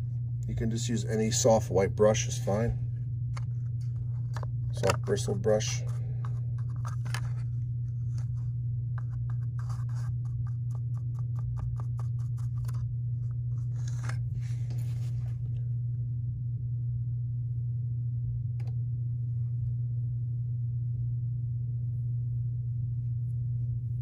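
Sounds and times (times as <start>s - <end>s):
steady low hum: 0.0s - 24.0s
bristles scratching on wood: 5.1s - 12.9s, 13.5s - 15.2s.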